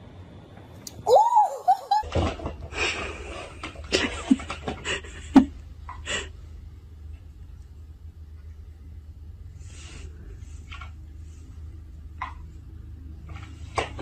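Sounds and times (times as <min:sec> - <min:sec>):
woman's high-pitched exclamation: 0:01.0 - 0:02.1.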